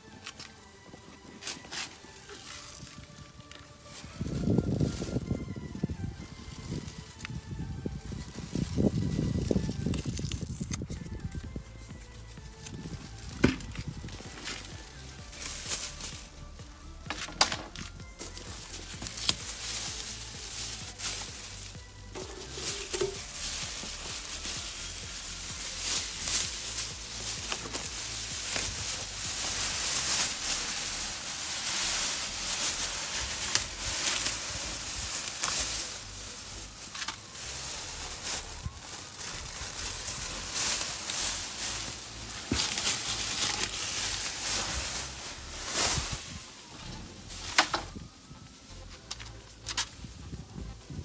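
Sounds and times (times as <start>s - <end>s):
plastic sheet crinkling: 17.1s - 48.0s.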